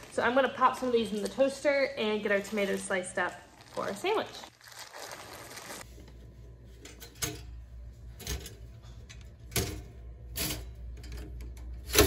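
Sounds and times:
low steady hum: 0:05.8 - 0:12.0.

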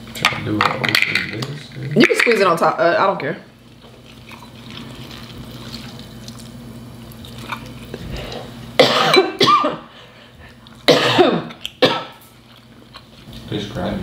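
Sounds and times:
person coughing: 0:08.8 - 0:09.9, 0:10.9 - 0:12.2.

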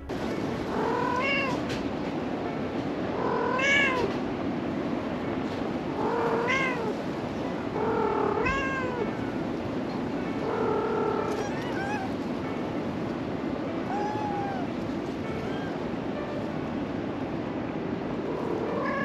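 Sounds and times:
cat meowing: 0:00.7 - 0:01.7, 0:03.2 - 0:04.1, 0:06.0 - 0:07.0, 0:07.8 - 0:09.1, 0:10.4 - 0:12.2, 0:13.7 - 0:15.8, 0:18.4 - 0:19.0.

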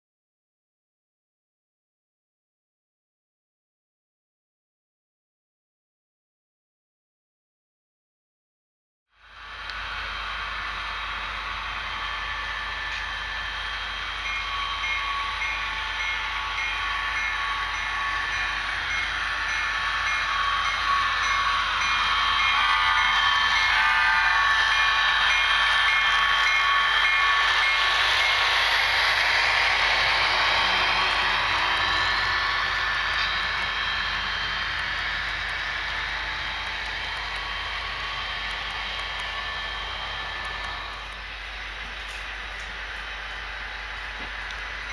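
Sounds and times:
model locomotive engine sound: 0:09.1 - 0:44.9
locomotive bell dinging: 0:12.8 - 0:28.6.

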